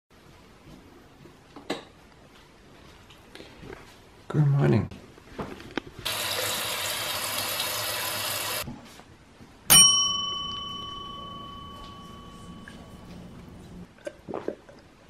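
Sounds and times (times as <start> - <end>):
water running from tap: 6.1 - 8.6
bell-like ding: 9.7 - 13.3.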